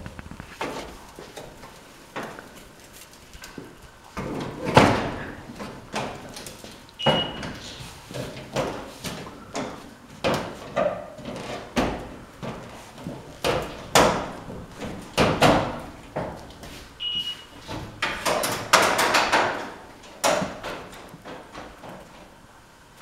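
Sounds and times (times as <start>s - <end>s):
sheet metal knocks and clanks: 4.2s - 6.4s, 8.2s - 16.4s, 17.7s - 22.0s.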